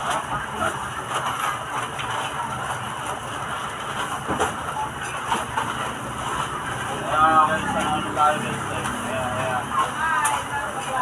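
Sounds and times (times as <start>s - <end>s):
background chatter: 6.5s - 11.0s.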